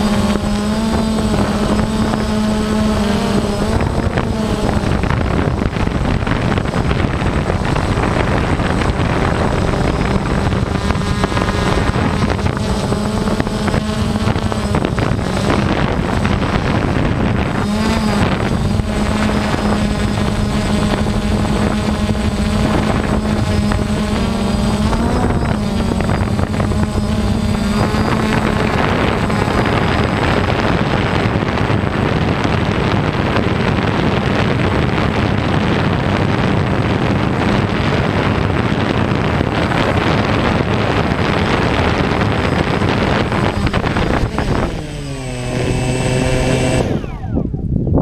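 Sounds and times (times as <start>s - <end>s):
drone propellers buzzing: 0.0s - 48.0s.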